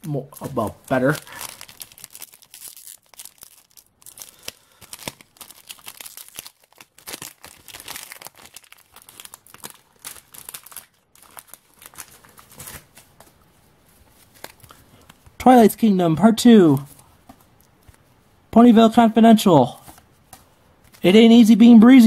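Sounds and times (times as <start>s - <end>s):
foil wrapper crinkling: 0.1s - 13.3s.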